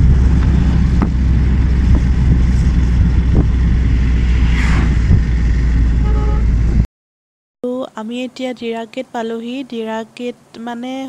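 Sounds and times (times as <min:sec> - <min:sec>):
car engine and tyre rumble: 0:00.0 - 0:06.9.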